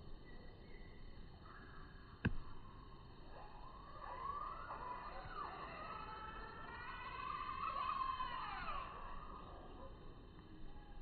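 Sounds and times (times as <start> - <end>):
faint siren wailing: 3.7 - 9.4.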